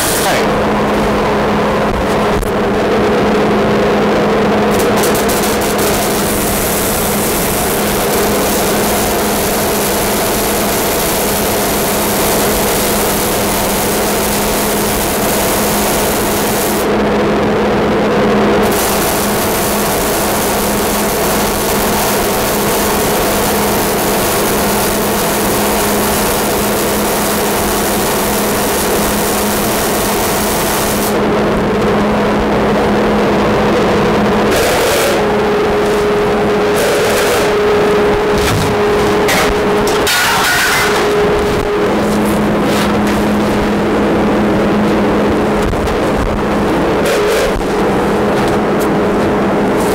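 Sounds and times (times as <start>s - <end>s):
dust collector droning: 0.0s - 49.9s
welding arc: 4.6s - 17.0s, 18.5s - 31.4s, 34.5s - 48.9s.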